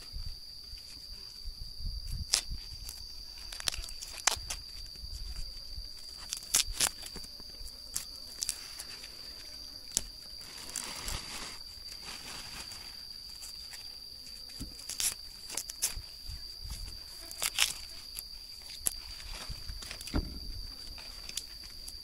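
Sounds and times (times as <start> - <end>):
brush rustling: 2.8 - 14.0, 14.6 - 20.1.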